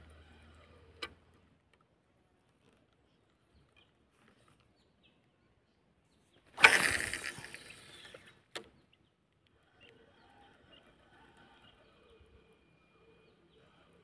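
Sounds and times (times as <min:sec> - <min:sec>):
rod swishing: 0:06.6 - 0:07.7
fishing line hissing off reel: 0:06.6 - 0:08.3.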